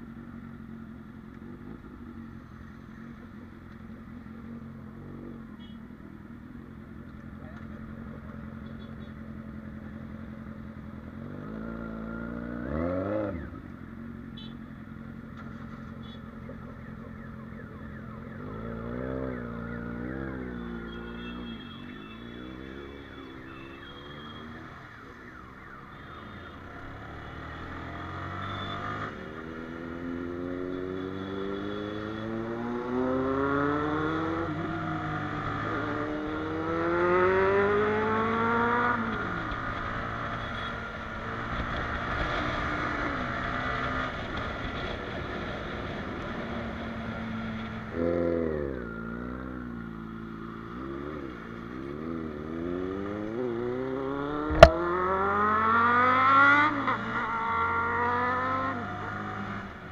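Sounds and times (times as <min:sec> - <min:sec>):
motorcycle engine accelerating: 0:51.8 - 0:59.9.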